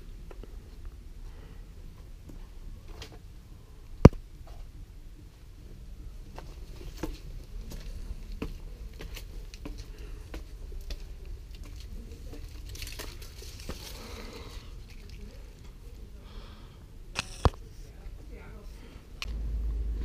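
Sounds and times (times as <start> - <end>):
footsteps on concrete: 6.4 - 12.4
low rumble: 19.2 - 20.0.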